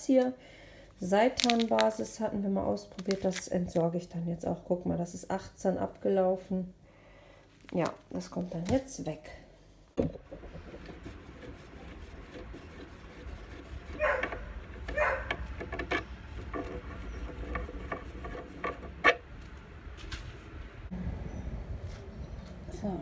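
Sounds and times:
low steady rumble: 9.3s - 23.0s
wood rubbing and scraping: 10.0s - 20.5s.

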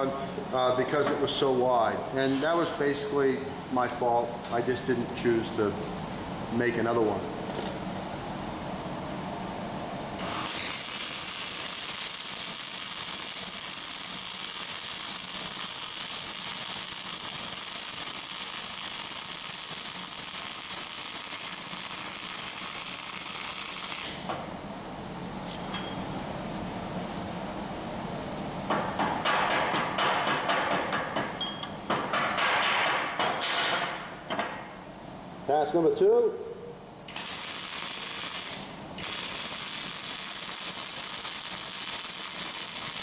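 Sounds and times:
welding arc hissing: 2.1s - 3.2s, 10.2s - 24.2s, 37.1s - 43.0s.

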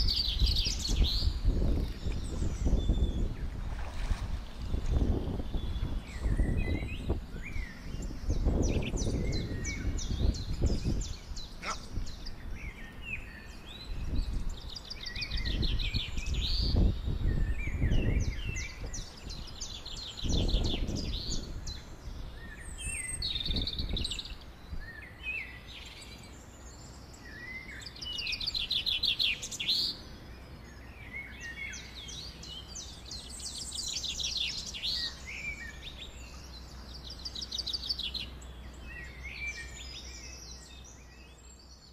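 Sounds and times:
wind rumble on microphone: 0.0s - 26.4s
songbirds singing and chirping: 0.0s - 41.9s.

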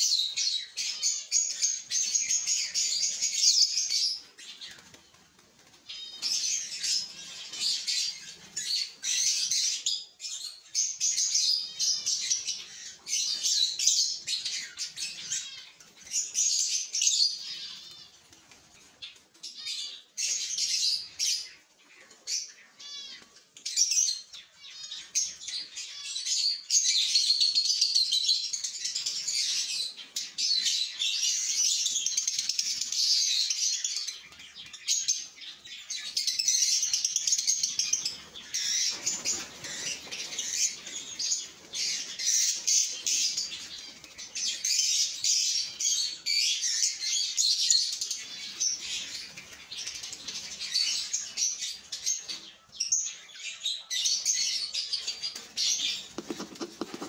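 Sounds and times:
lovebirds chattering: 54.4s - 57.0s
rustling scrape of nest box: 56.2s - 57.0s.

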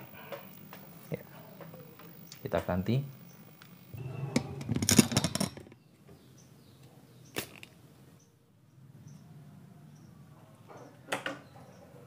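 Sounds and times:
faint low hum: 0.0s - 7.2s
tools clattering on circuit board: 4.7s - 5.7s.

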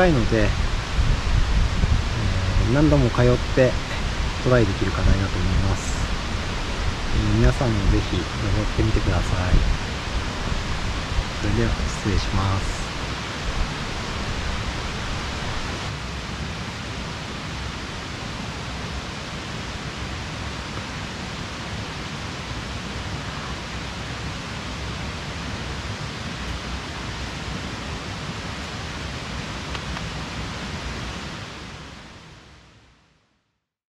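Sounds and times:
low rumble: 0.0s - 15.9s
outdoor hiss: 0.0s - 33.4s.

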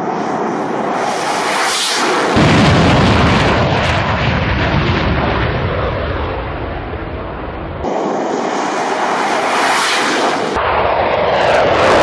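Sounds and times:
fighter jet engines roaring: 0.0s - 12.0s
deep rumble: 2.2s - 9.6s.

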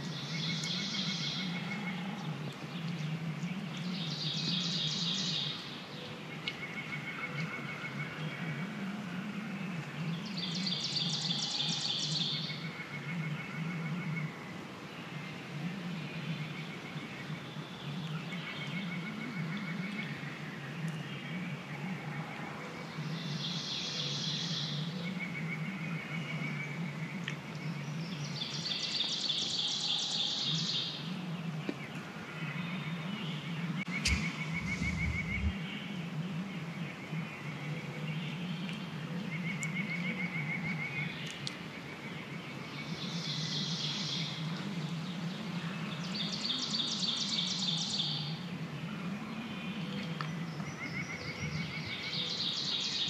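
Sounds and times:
songbird trills: 0.0s - 8.7s, 20.8s - 44.5s
faint bird calls: 16.3s - 41.5s
low thud: 34.0s - 35.6s.

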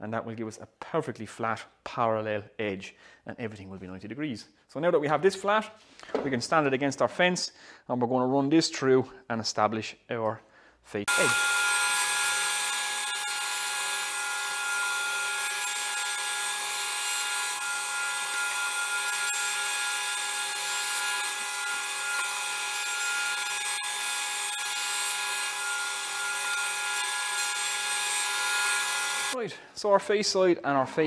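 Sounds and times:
planer motor whining: 11.1s - 29.4s.

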